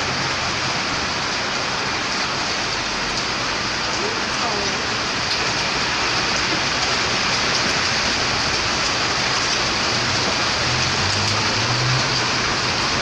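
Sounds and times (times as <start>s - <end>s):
hail and rain falling: 0.0s - 13.0s.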